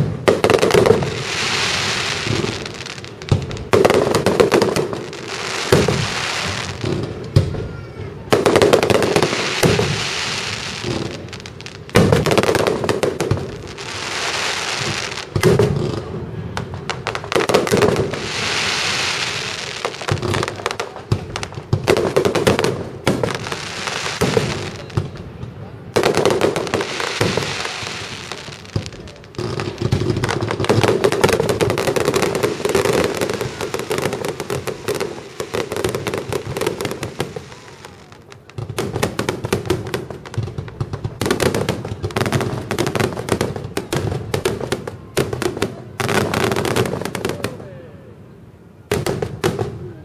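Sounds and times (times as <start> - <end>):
hissing crackle of stars: 17.9 - 21.8
firework shells bursting: 26.0 - 44.7.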